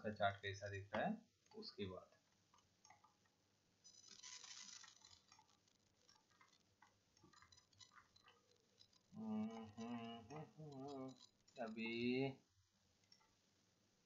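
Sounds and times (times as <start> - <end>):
computer mouse clicking: 2.5 - 3.3, 3.9 - 12.0
person mumbling: 9.2 - 12.3.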